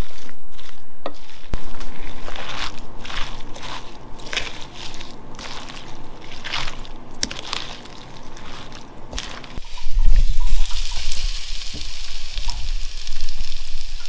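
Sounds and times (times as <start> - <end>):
spoon stirring wet batter: 2.0 - 11.8.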